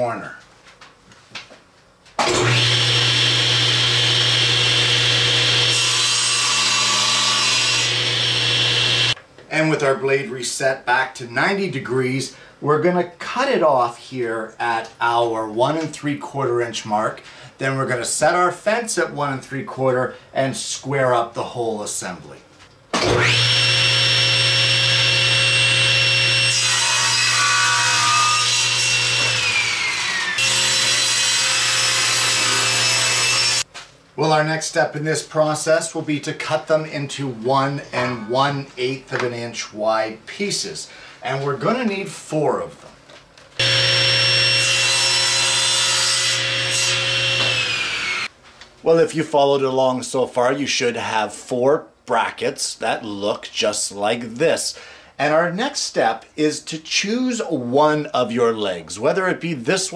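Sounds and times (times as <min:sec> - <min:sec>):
saw blade cutting plastic: 0:02.2 - 0:09.2, 0:43.6 - 0:48.3
table saw running: 0:02.2 - 0:09.2, 0:23.0 - 0:33.6, 0:43.6 - 0:48.3.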